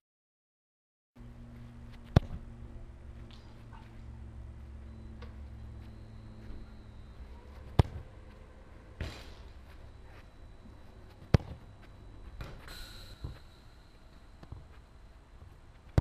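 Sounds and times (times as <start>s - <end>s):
football kicked hard: 2.0s - 2.4s, 7.7s - 8.0s, 11.2s - 11.7s, 12.4s - 13.4s.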